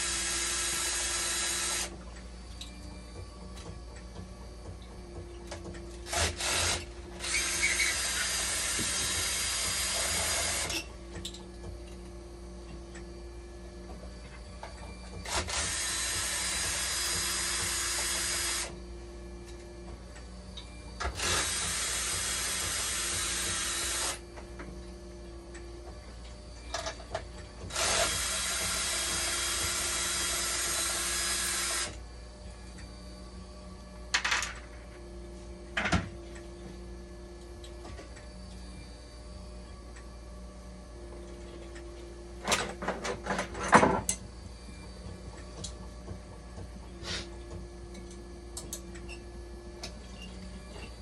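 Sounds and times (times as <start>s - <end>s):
power drill running: 0.0s - 2.0s, 6.0s - 10.9s, 15.2s - 18.8s, 21.0s - 24.3s, 27.6s - 32.0s
steady machine hum: 0.0s - 51.0s.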